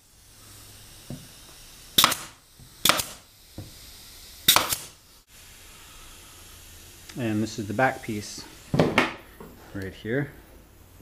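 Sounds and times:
nail gun shots: 2.0s - 3.2s, 4.5s - 5.0s
wood knocking: 8.7s - 9.2s.

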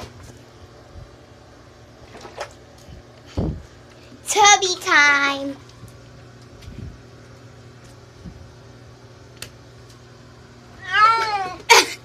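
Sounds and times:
cat meowing: 10.8s - 11.6s.

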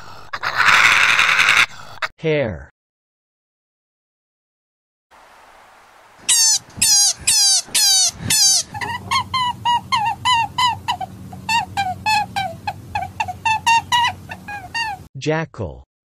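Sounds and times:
low steady hum: 5.2s - 15.1s
hare crying: 6.2s - 15.1s.

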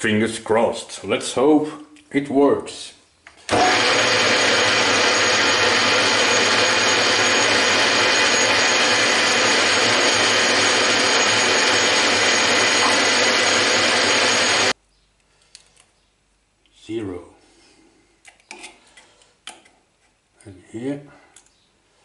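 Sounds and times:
metal lathe whining: 3.5s - 14.8s.

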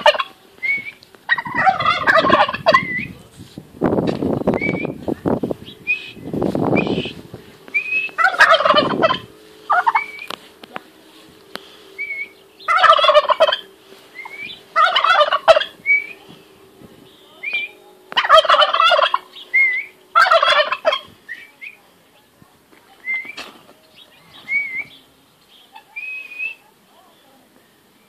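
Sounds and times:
turkey gobbling: 0.0s - 3.1s, 6.8s - 10.4s, 12.0s - 16.3s, 17.4s - 21.8s, 25.7s - 26.6s
high rising chirps: 4.4s - 21.8s.

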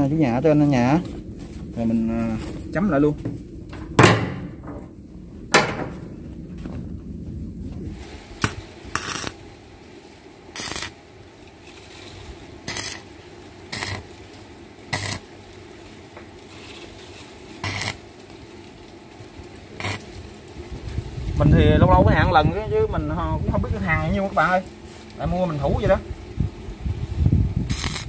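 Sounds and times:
arc welder tack welding: 7.8s - 26.2s, 27.6s - 28.0s.

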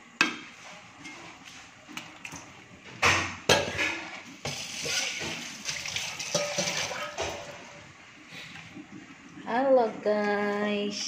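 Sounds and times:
metal spatula scraping wok: 4.5s - 5.4s.

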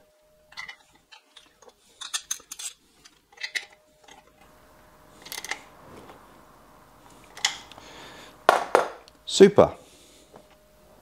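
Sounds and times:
metal tools clinking: 0.5s - 4.5s, 5.2s - 5.7s.

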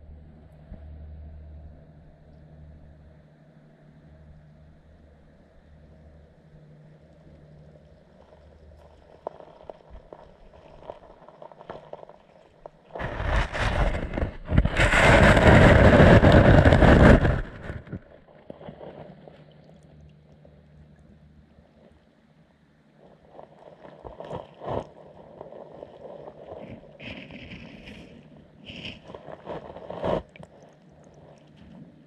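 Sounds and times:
underwater water movement: 7.0s - 21.9s, 23.0s - 32.0s.

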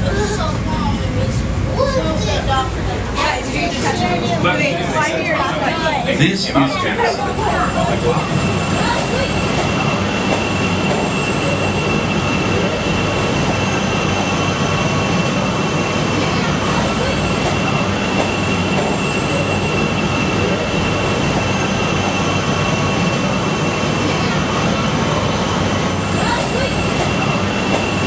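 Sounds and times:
train noise: 0.0s - 28.0s.

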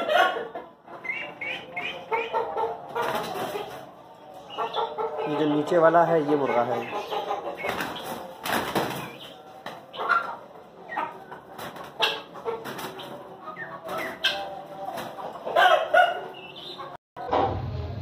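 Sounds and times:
roosters clucking and calling: 0.0s - 17.5s
wings flapping and scuffling: 2.9s - 3.8s, 7.1s - 10.2s, 11.6s - 13.2s, 13.9s - 15.2s.

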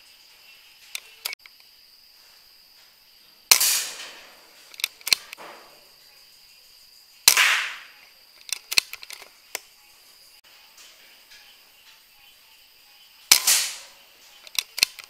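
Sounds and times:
air rifle shots: 3.5s - 5.9s, 7.2s - 8.0s, 13.3s - 15.0s
short sharp clicks: 7.3s - 9.7s, 13.3s - 15.0s.

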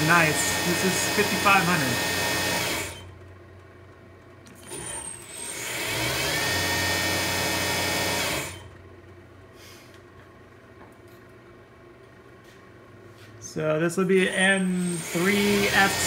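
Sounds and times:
mill spindle whining: 0.0s - 9.2s, 13.5s - 16.0s.

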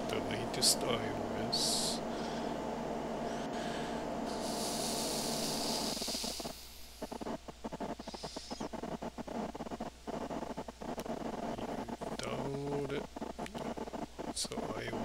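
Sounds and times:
low electrical hum: 0.0s - 15.0s
steady hiss: 0.0s - 15.0s
quick irregular clicks: 4.4s - 15.0s.

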